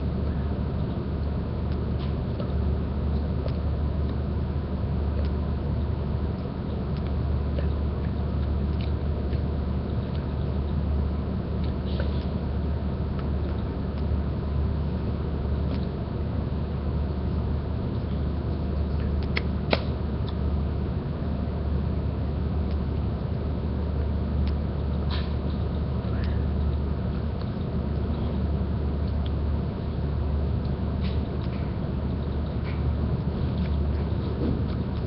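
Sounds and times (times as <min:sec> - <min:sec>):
low hum and hiss: 0:00.0 - 0:35.0.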